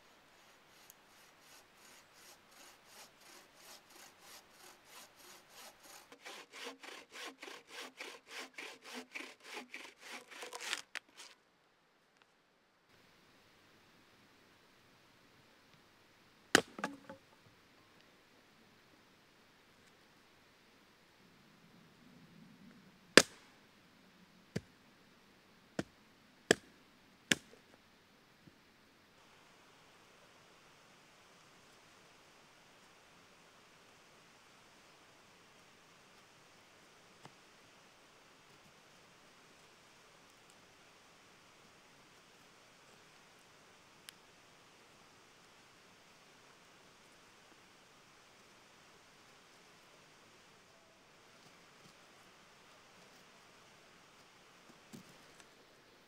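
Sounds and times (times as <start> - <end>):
saw rasping through log: 0.4 - 11.3
hatchet chopping wood: 3.7 - 10.8, 16.6 - 17.2, 23.2 - 23.4.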